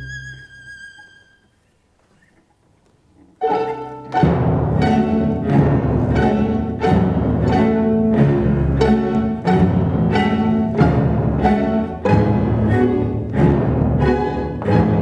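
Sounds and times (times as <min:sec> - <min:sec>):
solo violin: 0:00.0 - 0:01.6, 0:03.4 - 0:15.0
string orchestra accented chords: 0:03.4 - 0:15.0.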